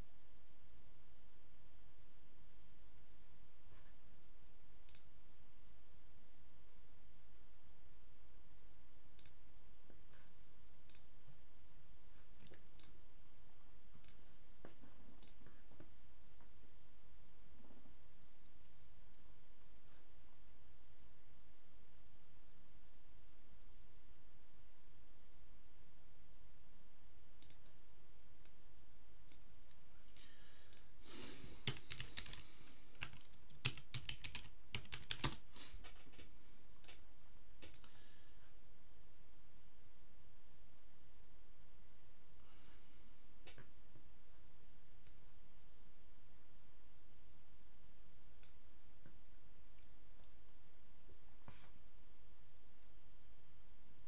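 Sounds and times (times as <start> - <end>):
faint hiss and low hum: 0.0 - 54.0
typing on computer keyboard: 31.6 - 37.0
mouse and keyboard clicks: 37.6 - 37.9.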